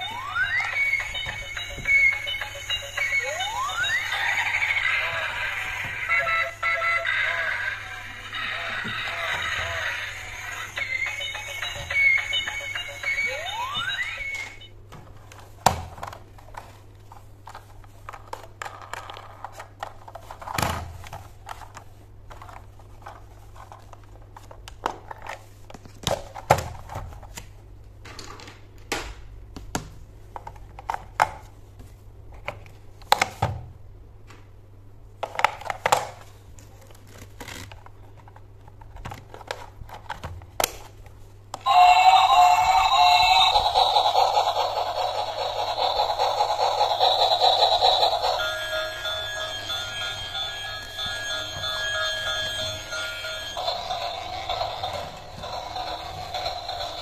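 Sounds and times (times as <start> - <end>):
electronic toy music: 0.0 - 14.7, 41.6 - 57.0.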